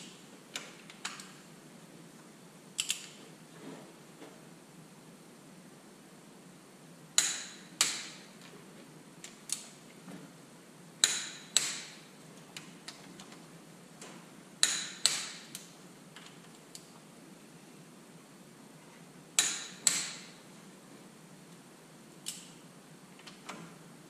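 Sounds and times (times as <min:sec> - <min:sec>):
light ticks of wrench and bolts: 0:02.8 - 0:03.2, 0:22.2 - 0:22.6.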